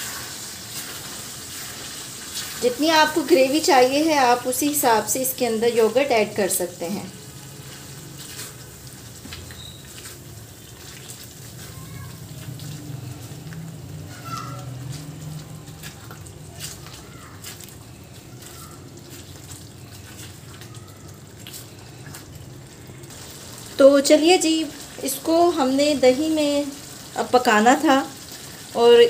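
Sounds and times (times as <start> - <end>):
gravy sizzling and bubbling: 0.0 - 29.0.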